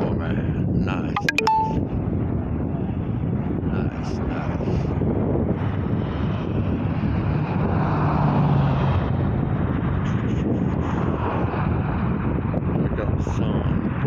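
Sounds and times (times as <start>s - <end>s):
wind rumbling on microphone: 0.0s - 1.2s, 1.8s - 14.0s
road traffic passing: 5.4s - 12.6s.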